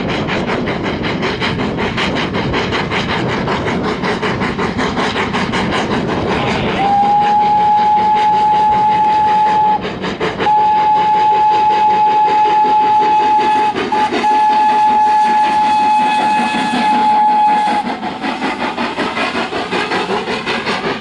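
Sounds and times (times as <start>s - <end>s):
train rumbling past: 0.0s - 21.0s
steam locomotive whistle: 6.6s - 18.1s.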